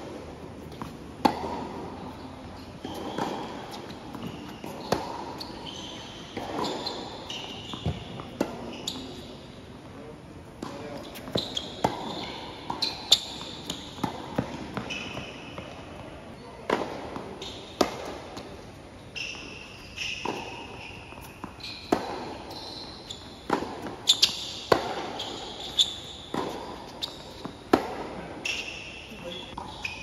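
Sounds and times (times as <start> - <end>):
sneakers squealing on court: 2.8 - 9.4, 10.7 - 15.8, 17.4 - 17.8, 19.1 - 27.6, 28.4 - 30.0.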